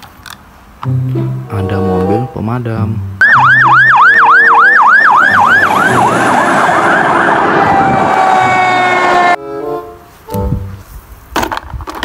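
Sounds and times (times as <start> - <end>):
fire engine siren: 3.2 - 9.4.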